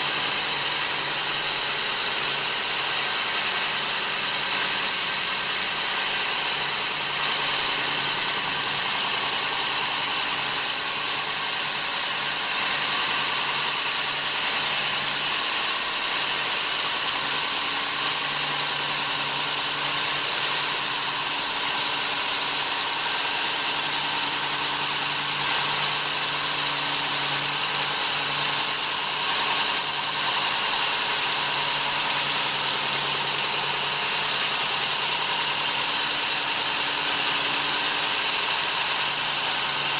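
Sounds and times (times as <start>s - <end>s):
core drill whining and grinding: 0.0s - 39.9s.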